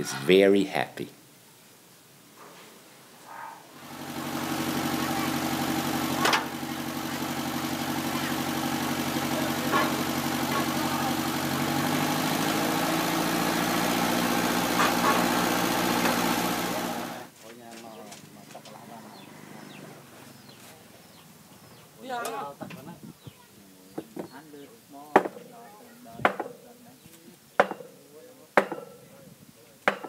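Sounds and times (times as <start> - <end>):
drilling rig engine running: 3.8 - 17.3
sharp knocks: 27.6 - 28.0, 28.6 - 29.0.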